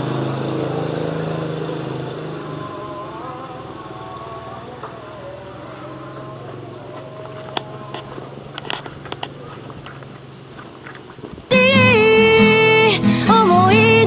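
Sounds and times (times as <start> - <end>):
wavering high whine: 0.0 - 9.8
small motor droning: 0.0 - 14.0.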